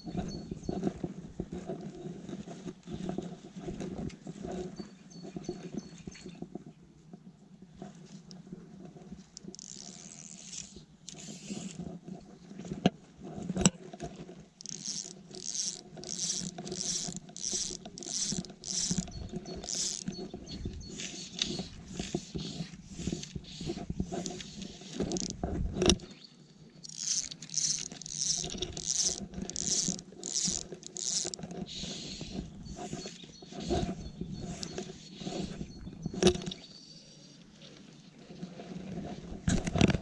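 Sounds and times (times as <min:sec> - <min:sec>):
fly line rasping through guides: 0:09.2 - 0:12.0, 0:14.6 - 0:26.0, 0:26.8 - 0:36.6.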